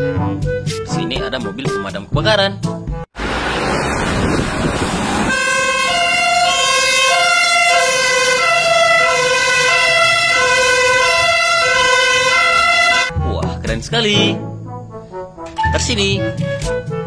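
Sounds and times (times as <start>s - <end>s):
rush of noise: 3.2s - 5.4s
two-tone fire engine siren: 3.6s - 13.1s.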